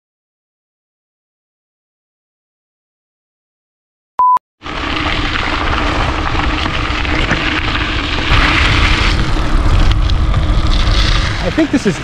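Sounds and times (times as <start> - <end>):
bike tyres rolling on gravel: 4.6 - 12.0
wind buffeting microphone: 5.0 - 12.0.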